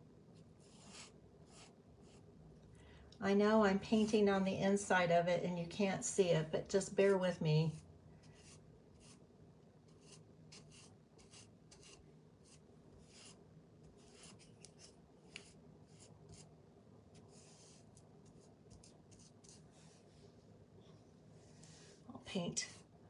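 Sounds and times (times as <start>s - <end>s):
paintbrush strokes: 9.9s - 16.5s, 17.1s - 20.5s.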